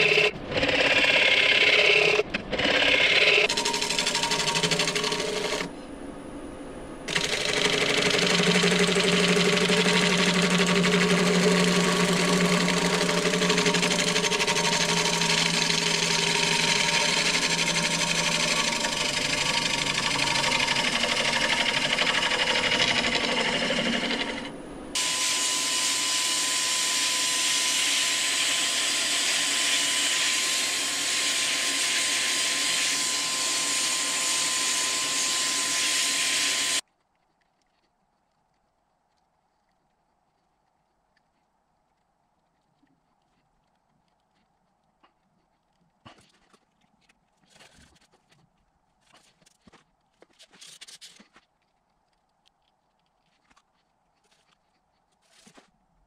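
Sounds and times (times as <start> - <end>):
lathe tool cutting wood: 0.0 - 5.7, 7.1 - 36.8
power drill sanding whine: 0.0 - 5.7, 7.1 - 36.8.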